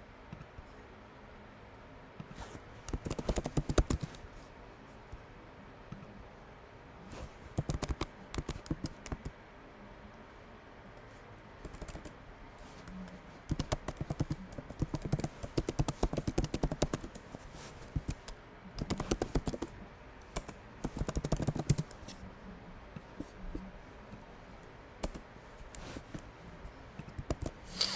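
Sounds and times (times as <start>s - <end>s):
computer keyboard typing: 2.8s - 4.2s, 7.5s - 9.3s, 11.6s - 12.2s, 12.9s - 17.2s, 17.9s - 22.1s, 25.0s - 26.2s, 27.0s - 27.6s.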